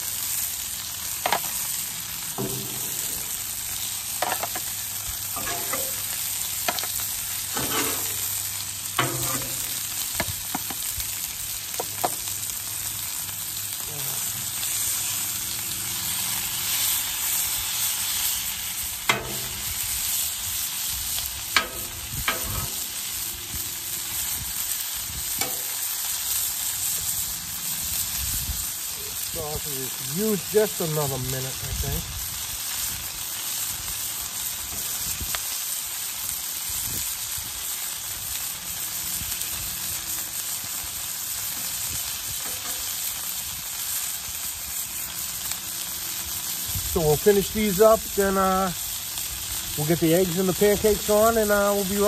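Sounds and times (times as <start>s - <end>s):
sausage sizzling on griddle: 0.0s - 52.0s
metal spatula scraping griddle: 1.2s - 10.7s, 21.6s - 23.2s.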